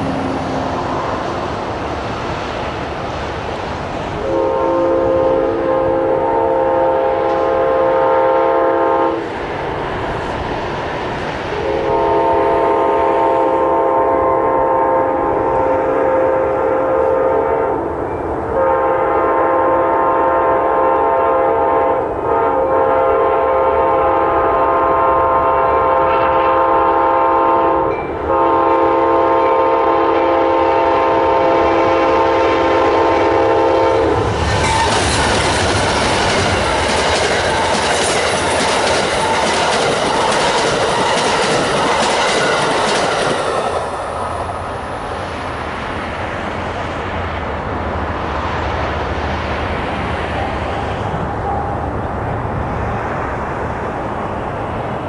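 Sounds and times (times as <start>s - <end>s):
train rushing past: 0.0s - 55.0s
locomotive air horn: 4.2s - 9.2s, 11.6s - 17.8s, 18.5s - 35.3s
wheels clattering over rail joints: 34.4s - 43.9s.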